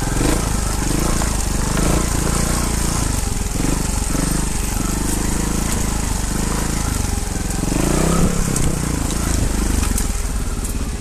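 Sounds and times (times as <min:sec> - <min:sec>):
motorcycle engine running low revs: 0:00.0 - 0:11.0.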